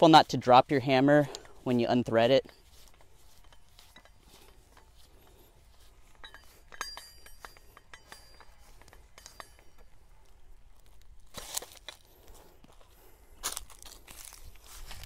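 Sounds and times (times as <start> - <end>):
metal wrenches clinking: 0.3 - 12.1.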